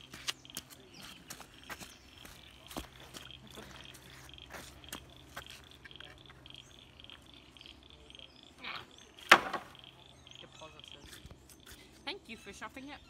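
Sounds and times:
footsteps on bare rock: 0.0s - 6.4s
wooden plank landing on timber: 9.2s - 9.8s.

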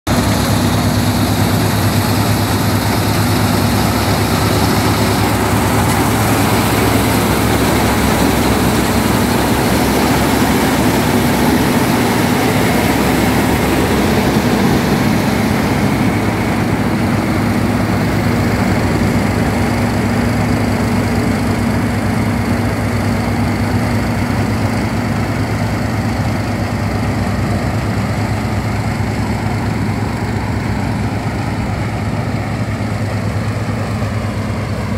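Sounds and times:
combine harvester engine running: 0.0s - 34.9s
machinery clatter: 0.1s - 34.9s.

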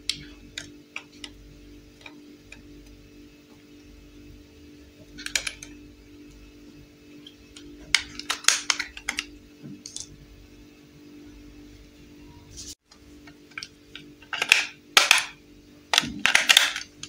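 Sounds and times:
plastic clicks and clatters: 13.6s - 17.0s.

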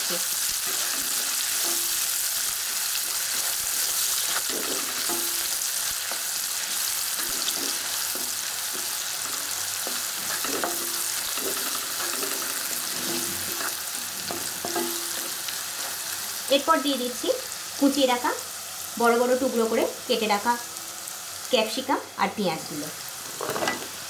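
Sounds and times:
oil sizzling in a pan: 0.0s - 24.0s
wooden spatula scraping a pan: 2.8s - 5.5s, 6.7s - 16.0s, 23.2s - 24.0s.

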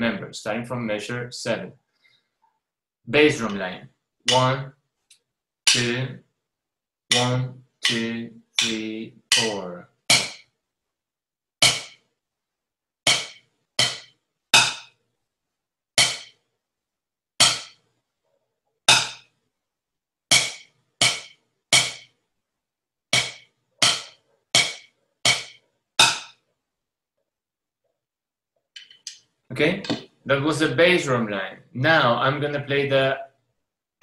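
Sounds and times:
drumsticks tapping practice pad: 4.3s - 4.5s, 5.7s - 6.0s, 7.1s - 10.4s, 11.6s - 12.0s, 13.1s - 14.9s, 16.0s - 16.4s, 20.3s - 22.1s, 23.2s - 26.4s.

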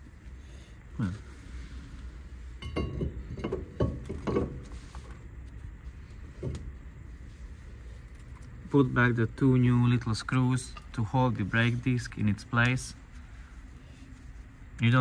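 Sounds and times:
metallic clinks and knocks: 2.6s - 4.7s.

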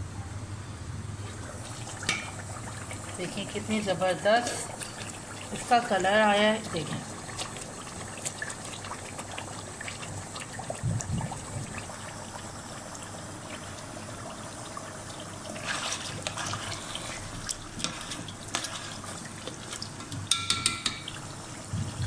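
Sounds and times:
gravy bubbling in a pan: 1.0s - 22.0s.

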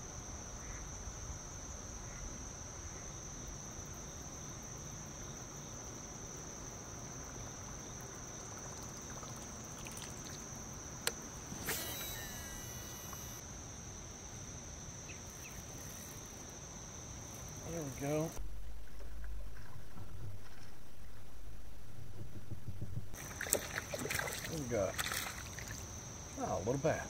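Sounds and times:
insects calling in chorus: 0.4s - 18.4s, 23.1s - 27.0s
brief noisy burst: 11.5s - 13.4s.

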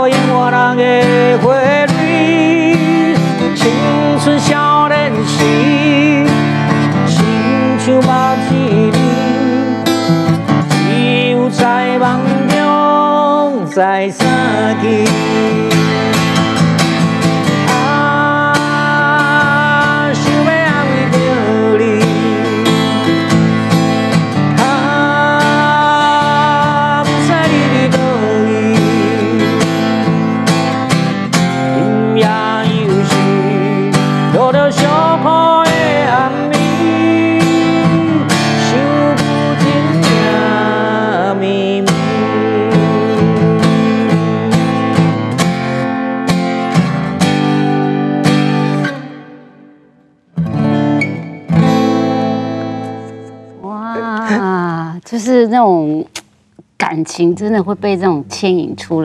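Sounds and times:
man singing a slow ballad: 0.0s - 16.6s, 17.6s - 23.6s, 24.4s - 30.7s, 31.4s - 45.3s
acoustic guitar strumming: 0.0s - 59.0s.

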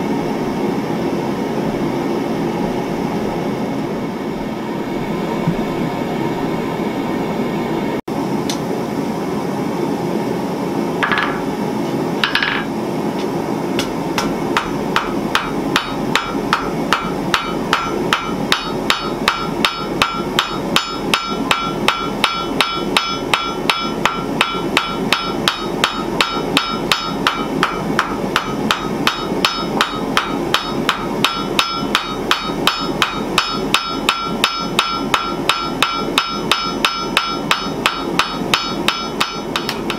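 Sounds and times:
steady rushing noise: 0.0s - 8.2s
hammer striking steel on anvil: 13.8s - 39.9s
anvil ringing: 14.2s - 39.9s.

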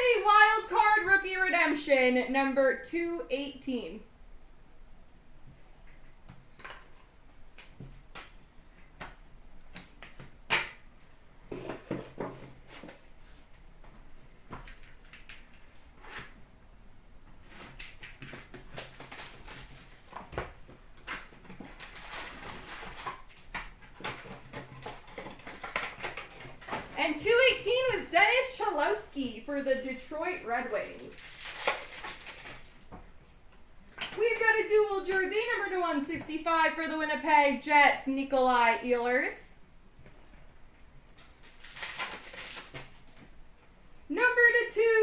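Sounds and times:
wrappers rustling: 17.4s - 20.4s, 21.0s - 27.0s, 30.6s - 32.9s, 41.1s - 43.3s.

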